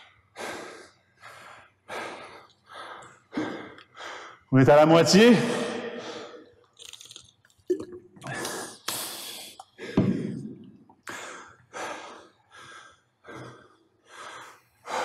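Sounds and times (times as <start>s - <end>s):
man breathing hard: 0.0s - 4.5s, 5.9s - 6.6s, 8.2s - 15.0s.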